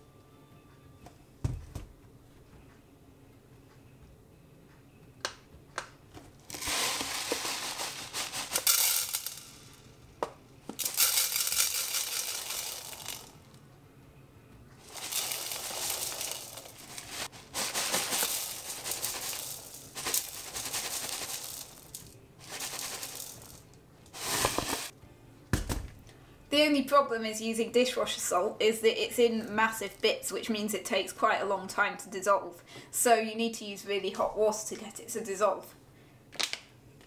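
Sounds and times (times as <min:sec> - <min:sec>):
salt granules poured into glass bowl: 0:06.5 - 0:09.8, 0:10.8 - 0:13.4, 0:14.8 - 0:23.6.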